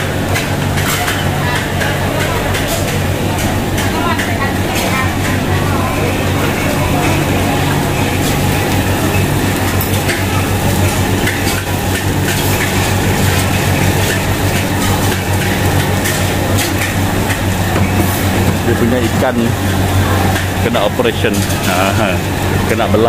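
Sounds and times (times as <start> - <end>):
loud machine hum: 0.0 - 23.0.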